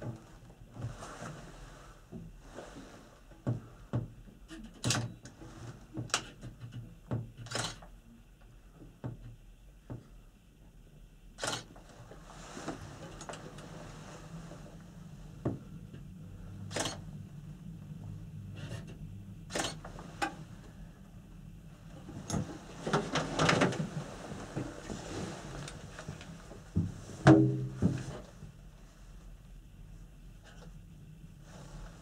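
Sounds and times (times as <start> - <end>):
low steady hum: 0.0 - 32.0
gondola cabin rattling: 21.6 - 28.4.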